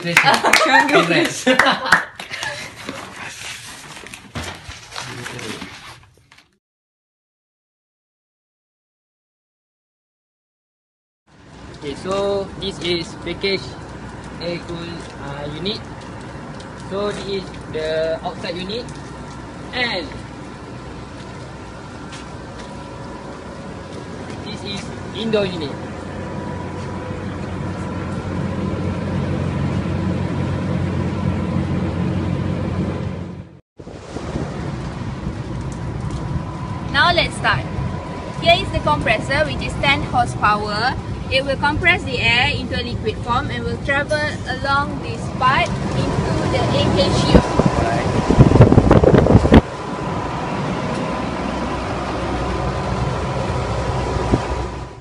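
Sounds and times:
air conditioner hum and whine: 0:11.4 - 0:33.2, 0:35.0 - 0:55.0
wind buffeting microphone: 0:33.8 - 0:54.9.

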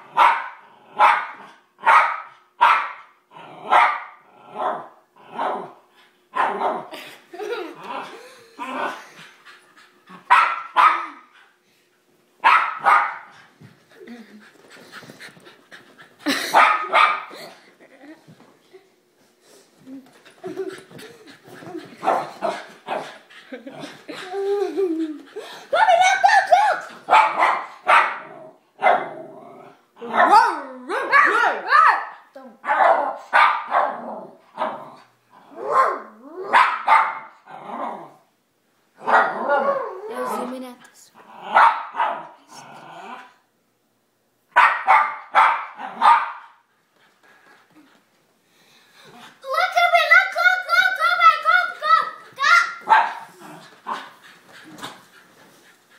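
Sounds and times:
dog barking: 0:00.1 - 0:03.1, 0:03.7 - 0:05.7, 0:06.4 - 0:06.9, 0:10.3 - 0:11.2, 0:12.4 - 0:13.3, 0:16.5 - 0:17.3, 0:27.1 - 0:29.1, 0:30.1 - 0:34.0, 0:35.6 - 0:37.3, 0:39.0 - 0:39.8, 0:41.5 - 0:42.4, 0:44.6 - 0:46.6, 0:52.8 - 0:53.2.

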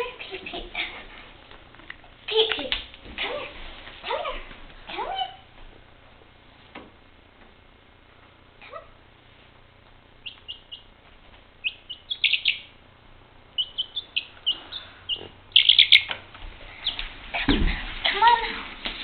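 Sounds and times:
chick peeping: 0:10.2 - 0:11.0, 0:11.6 - 0:12.8, 0:13.5 - 0:17.1.

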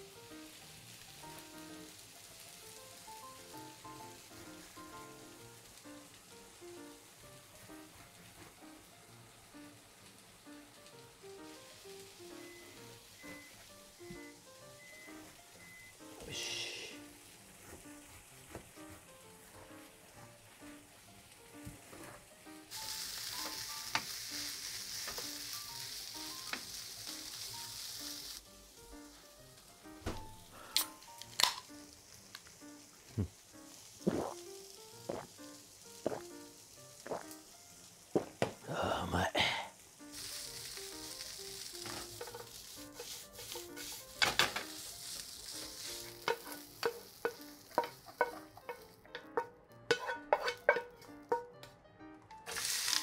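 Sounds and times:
onions sizzling in a frying pan: 0:00.0 - 0:51.5, 0:52.4 - 0:53.0
wooden spatula knocking on pan: 0:46.2 - 0:51.5.

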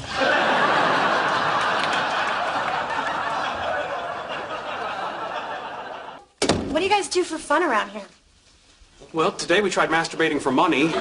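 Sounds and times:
studio audience laughing: 0:00.0 - 0:06.3.

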